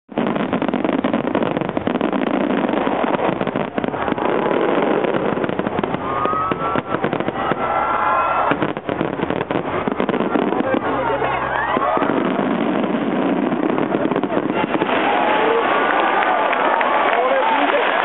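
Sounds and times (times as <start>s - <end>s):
firework bursts and crackling: 0.1s - 18.0s
firework whistles: 2.0s - 10.4s.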